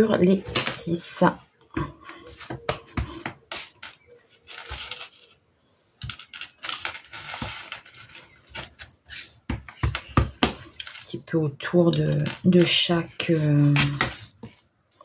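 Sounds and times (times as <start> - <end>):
paper rustling and sliding: 6.7 - 9.4.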